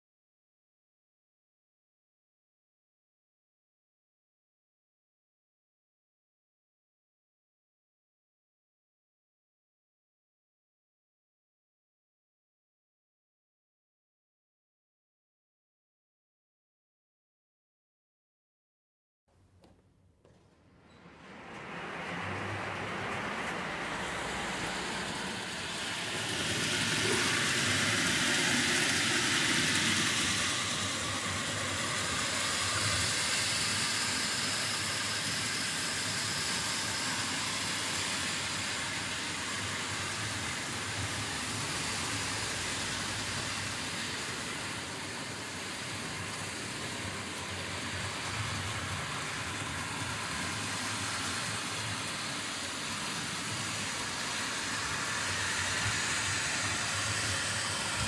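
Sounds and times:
small wheels rolling on rails: 20.3 - 58.0
model train electric motors running: 21.2 - 58.0.

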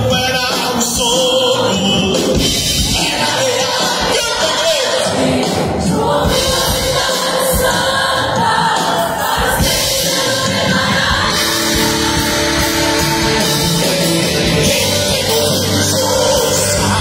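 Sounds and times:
congregation singing along: 0.0 - 17.0
instrumental backing: 1.8 - 17.0
women singing into microphones: 5.1 - 14.8.

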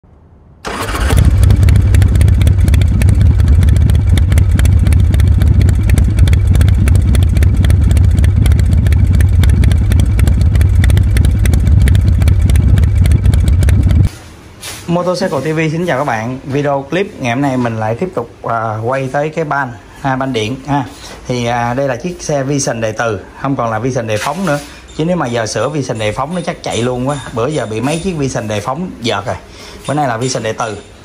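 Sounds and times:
motorcycle engine running: 0.7 - 14.1.

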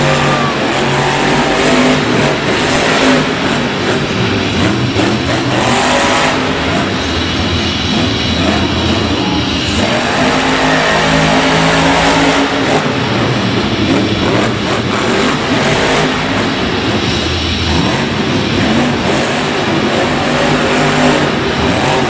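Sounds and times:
monster truck engine revving: 0.0 - 22.0.

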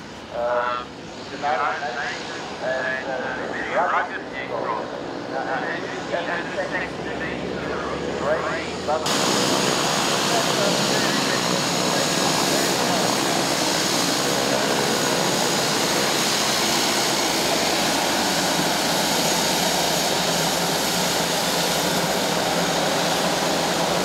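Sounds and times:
turboprop engines running: 0.0 - 24.0.

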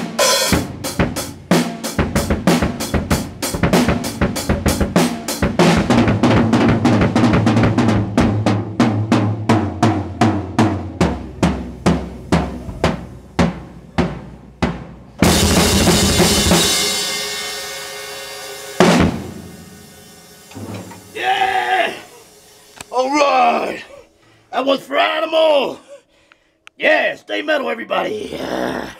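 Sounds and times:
snare drum strokes: 0.0 - 23.8
bass drum strokes: 0.5 - 23.9
cymbal crash: 10.0 - 24.2.

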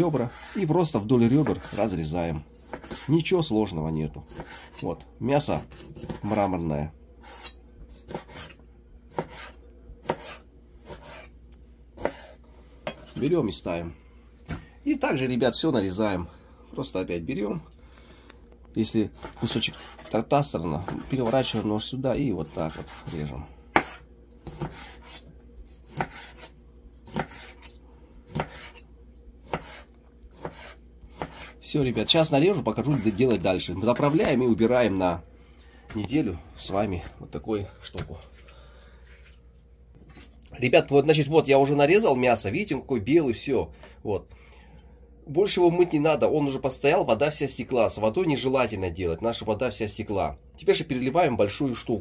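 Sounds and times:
knife chopping fish: 2.6 - 3.1, 4.3 - 4.8, 7.2 - 11.3, 12.0 - 13.1, 19.1 - 20.2, 20.8 - 27.7, 28.3 - 28.8, 29.4 - 32.0
knife rasping through fish: 22.4 - 28.8, 29.4 - 31.6.

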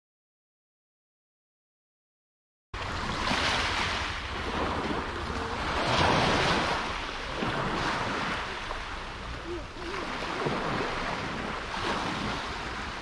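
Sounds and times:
waves washing up gravel beach: 2.8 - 13.0
wind buffeting microphone: 2.8 - 13.0.

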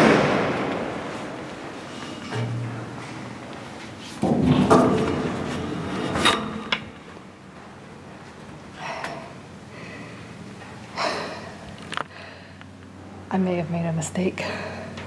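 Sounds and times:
sharp metal clanks: 1.9 - 3.4.

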